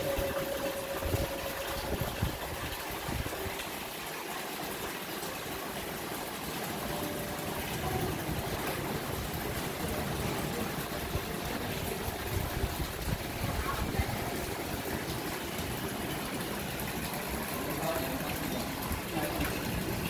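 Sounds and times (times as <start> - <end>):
fountain water splashing into basin: 0.0 - 20.0.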